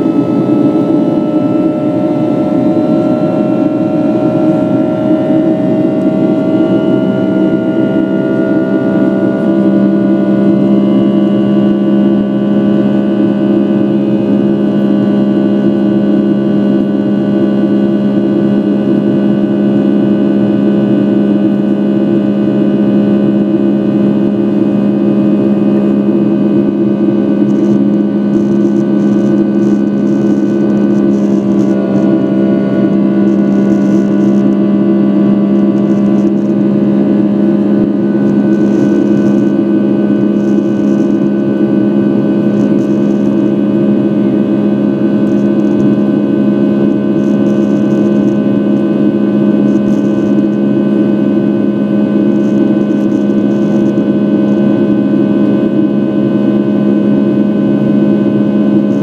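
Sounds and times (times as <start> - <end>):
deep hum: 0.0 - 59.0
jet engine drone in cabin: 0.0 - 59.0.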